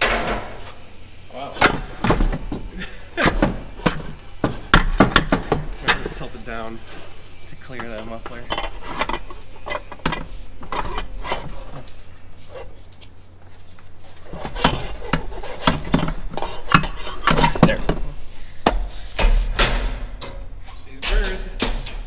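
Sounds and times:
metallic clanks and knocks: 0:00.0 - 0:00.6, 0:01.6 - 0:06.3, 0:18.7 - 0:22.0.

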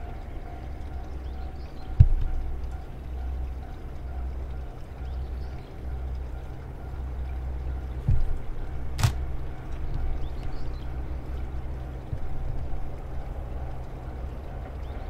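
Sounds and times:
low outdoor rumble: 0:00.0 - 0:15.0
low thump: 0:08.1 - 0:08.4
sharp click: 0:09.0 - 0:09.2.

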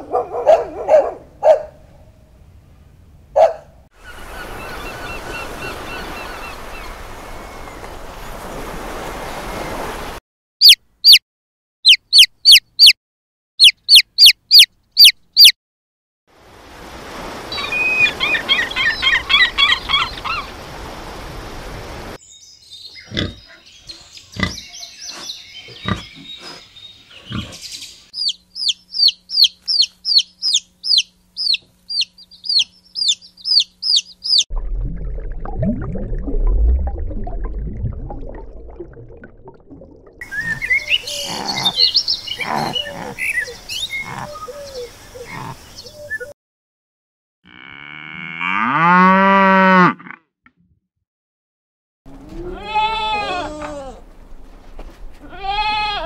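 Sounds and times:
chick peeping rapidly: 0:10.6 - 0:11.2, 0:11.8 - 0:13.0, 0:13.6 - 0:15.5, 0:28.2 - 0:34.4
loud sharp chirps: 0:10.6 - 0:11.2, 0:11.8 - 0:13.0, 0:28.2 - 0:34.5
gulls calling: 0:40.2 - 0:46.3.

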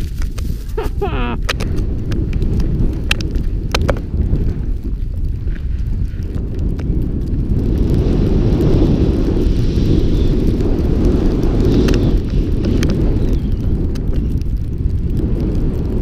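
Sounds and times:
snowboard sliding over snow: 0:00.0 - 0:16.0
wind buffeting microphone: 0:00.0 - 0:16.0
light ticks: 0:01.4 - 0:08.8.

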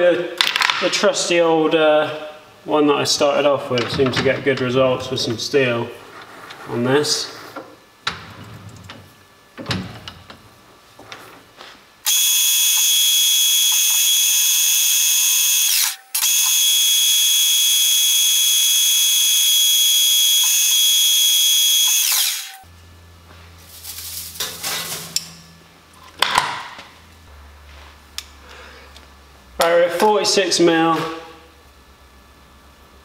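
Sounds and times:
lathe cutting screeching whine: 0:12.1 - 0:22.6.

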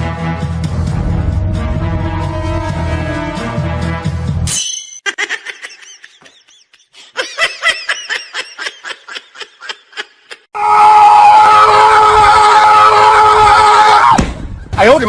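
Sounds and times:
music: 0:00.0 - 0:04.6
high-pitched giggling laughter: 0:05.0 - 0:10.5.

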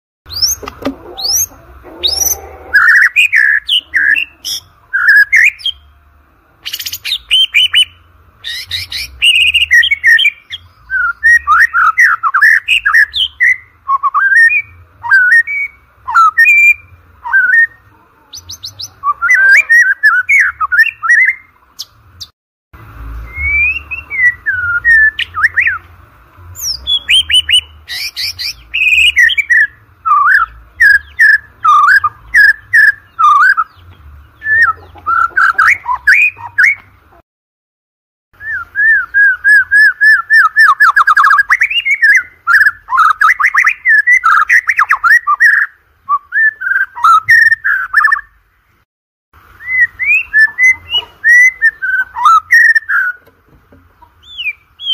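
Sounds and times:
songbird whistling and trilling: 0:00.3 - 0:05.9, 0:06.6 - 0:22.3, 0:23.2 - 0:25.9, 0:26.6 - 0:36.9, 0:38.4 - 0:48.4, 0:49.5 - 0:53.3, 0:54.0 - 0:54.9.

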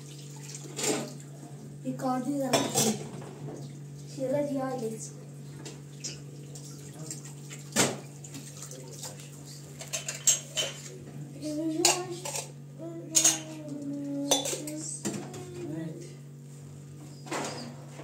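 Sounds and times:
metal dishes and pots clanking: 0:09.8 - 0:10.9, 0:13.1 - 0:13.5, 0:14.3 - 0:14.7.

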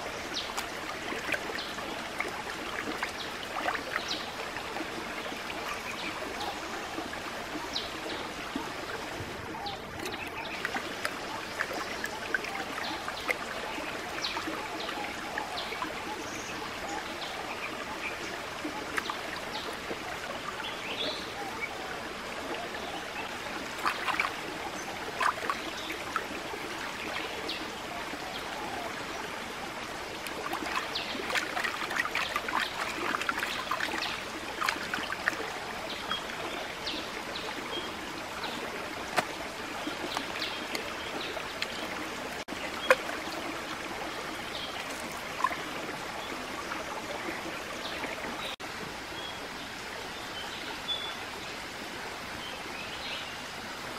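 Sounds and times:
stream trickling over rocks: 0:00.0 - 0:53.9
hands splashing in water: 0:39.0 - 0:39.4.

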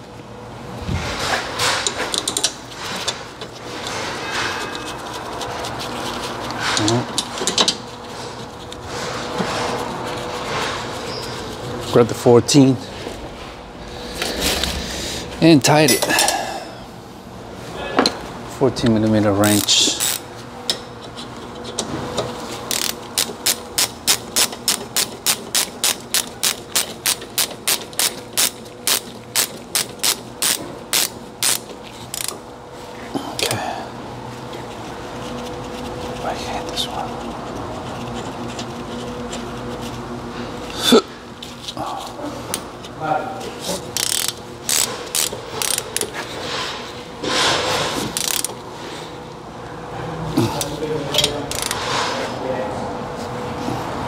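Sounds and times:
ratchet wrench clicking: 0:19.4 - 0:20.8, 0:22.7 - 0:32.4, 0:43.9 - 0:46.2, 0:48.1 - 0:48.6, 0:51.1 - 0:51.8.

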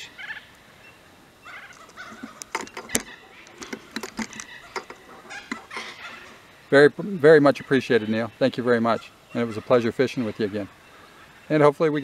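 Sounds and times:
faint bird calls: 0:00.0 - 0:11.6
sharp clicks and taps: 0:01.7 - 0:05.8.

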